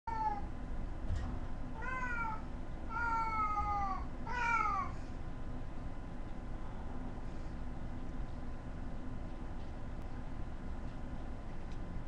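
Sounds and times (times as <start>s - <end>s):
cat meowing: 1.8s - 5.0s.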